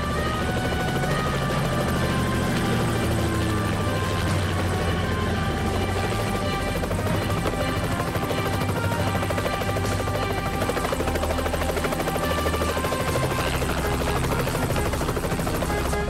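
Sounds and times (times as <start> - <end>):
helicopter rotor chopping: 0.0 - 16.0.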